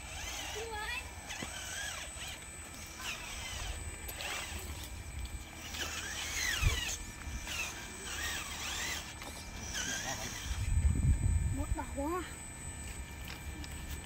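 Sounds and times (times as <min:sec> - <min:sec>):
electric motor and gearbox whining: 0:00.0 - 0:14.0.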